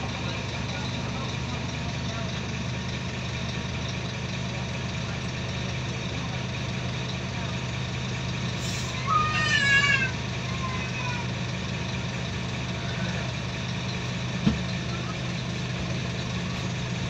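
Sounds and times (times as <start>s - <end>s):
passenger's voice: 0.0s - 7.8s
bus diesel engine humming: 0.0s - 17.0s.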